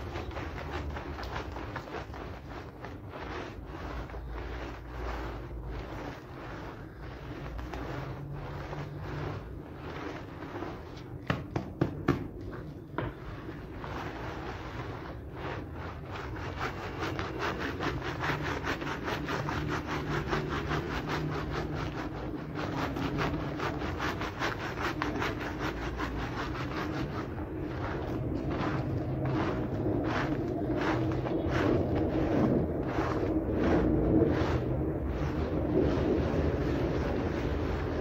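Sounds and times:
wet scrubbing of rug: 0.0s - 38.0s.

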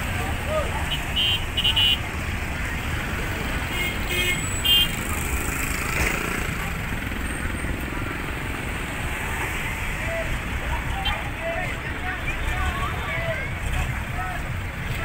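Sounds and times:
car and motorcycles passing: 0.0s - 15.0s
vehicle engines running low: 0.0s - 15.0s.

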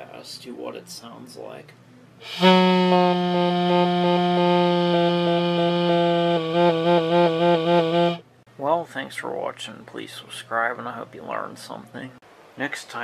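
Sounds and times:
buzzy air horn note: 2.2s - 8.2s.

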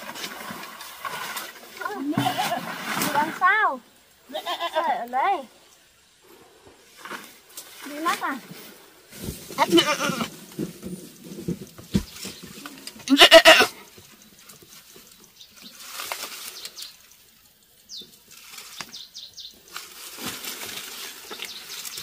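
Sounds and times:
goat bleating: 4.3s - 5.0s, 9.6s - 10.3s, 13.0s - 13.8s
rustling: 6.4s - 22.0s.

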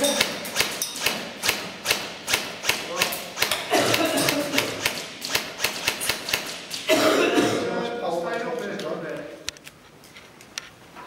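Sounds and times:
airsoft gun shots: 0.1s - 7.0s.

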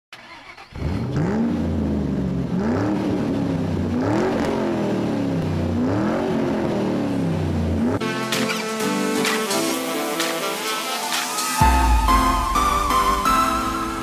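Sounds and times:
engine revving: 0.2s - 8.7s.

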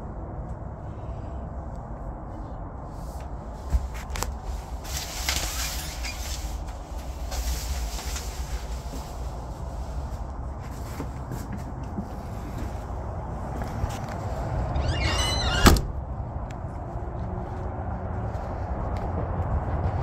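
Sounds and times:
shower curtain rustling: 4.8s - 9.4s.

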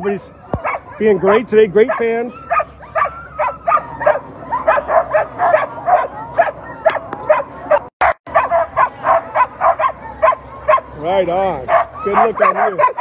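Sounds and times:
sled dogs barking and yipping: 0.0s - 13.0s.

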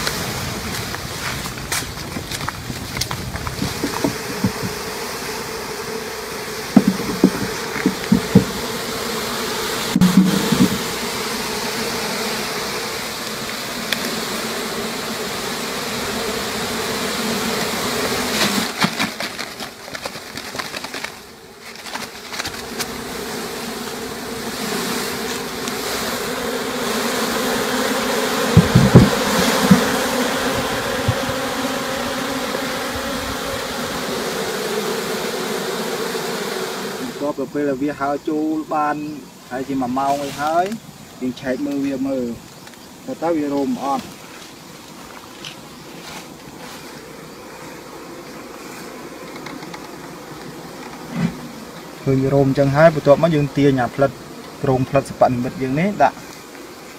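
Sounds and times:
bee swarm buzzing: 0.0s - 56.9s
dull knocks from handling: 3.0s - 4.8s, 6.8s - 8.6s, 28.6s - 29.9s.

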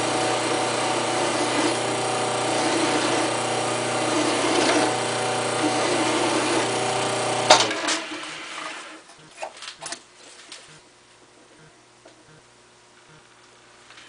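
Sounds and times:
lathe motor humming: 0.0s - 9.0s
file rasping on metal rod: 0.1s - 7.0s.

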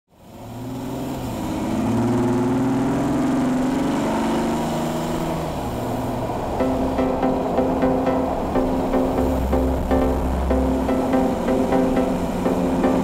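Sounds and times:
road noise: 0.1s - 13.0s
car engine running: 5.8s - 13.0s.

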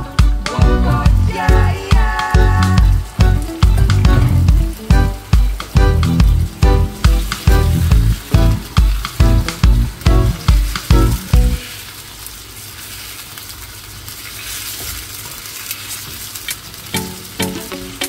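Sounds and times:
music with steady beat: 0.0s - 11.6s
chicken sizzling in hot oil: 0.0s - 18.0s
spatula stirring in frying pan: 1.4s - 18.0s.

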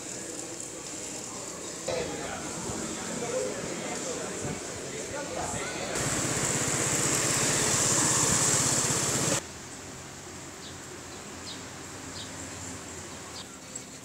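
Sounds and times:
outdoor ambience: 0.0s - 14.0s
vehicle engine running: 6.0s - 9.4s.

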